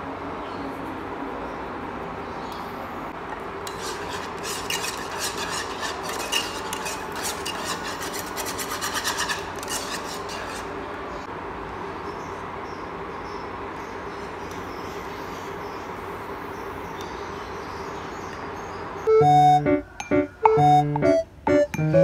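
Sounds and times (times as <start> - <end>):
whisk beating in a pan: 3.7 - 10.7.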